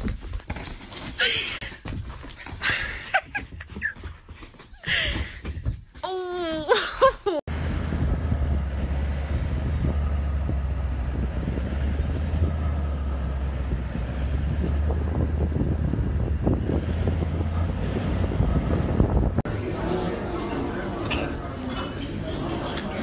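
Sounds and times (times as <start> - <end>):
car engine and road rumble: 7.5 - 19.5
wind buffeting microphone: 7.6 - 19.5.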